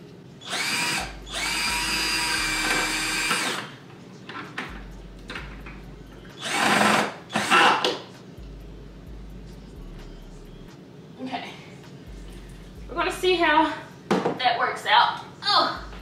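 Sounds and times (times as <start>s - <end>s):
power drill drilling into wall: 0.4s - 3.7s, 6.4s - 7.9s.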